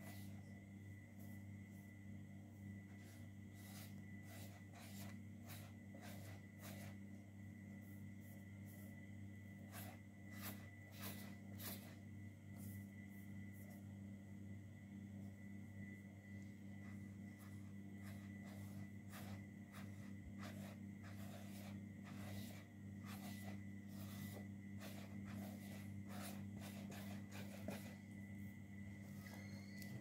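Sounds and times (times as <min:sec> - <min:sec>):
fingers smearing paint on paper: 0:00.0 - 0:00.5, 0:02.9 - 0:07.0, 0:07.8 - 0:13.8, 0:16.8 - 0:28.2.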